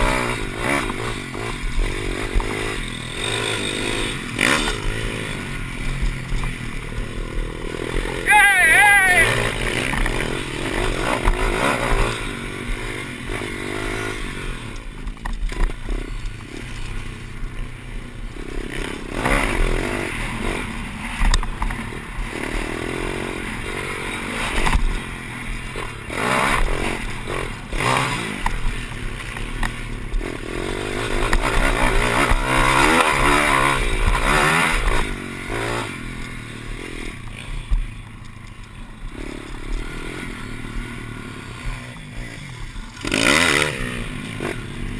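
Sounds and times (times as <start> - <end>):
motorbike engine revving: 0.0 - 44.9.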